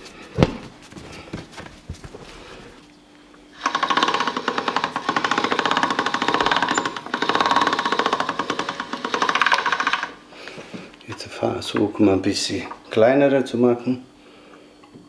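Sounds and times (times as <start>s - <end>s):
pasta machine gears clicking: 3.6s - 10.2s.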